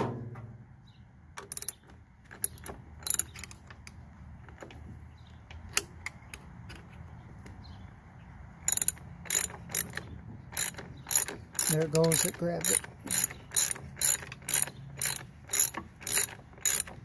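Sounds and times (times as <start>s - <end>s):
metallic clicks of hand tools: 8.7s - 17.0s.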